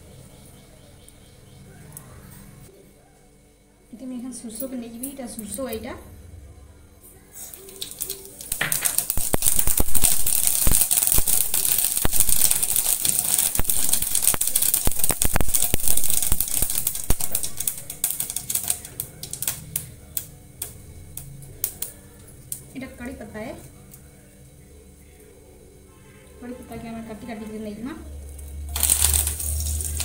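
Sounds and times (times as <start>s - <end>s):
mustard seeds spluttering in oil: 7.3s - 24.7s, 26.4s - 30.0s.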